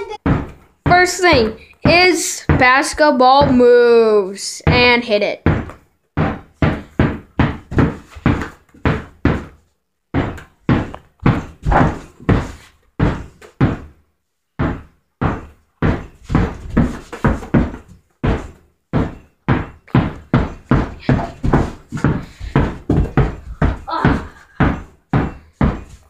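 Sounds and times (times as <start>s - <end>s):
basketball bouncing on carpet: 0.0s - 3.8s, 4.6s - 14.0s, 14.6s - 26.0s.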